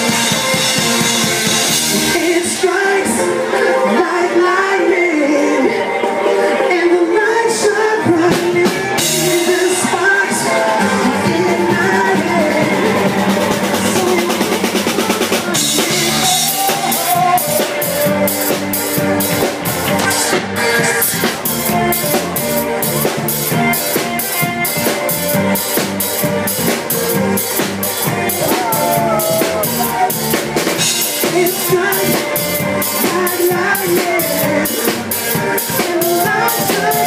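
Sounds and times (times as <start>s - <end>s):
drum kit beat: 0.0s - 3.2s, 8.0s - 37.0s
electric bass: 0.0s - 6.1s, 7.6s - 37.0s
electric guitar: 0.0s - 37.0s
live rock band playing: 0.0s - 37.0s.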